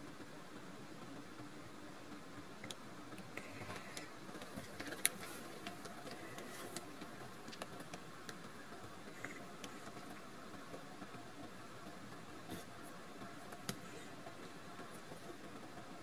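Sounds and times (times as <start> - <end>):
low room hiss: 0.0 - 16.0.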